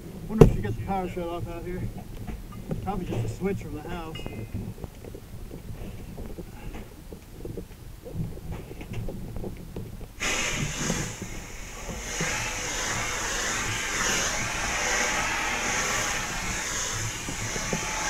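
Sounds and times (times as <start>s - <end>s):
hose water spray hissing: 10.2s - 18.0s.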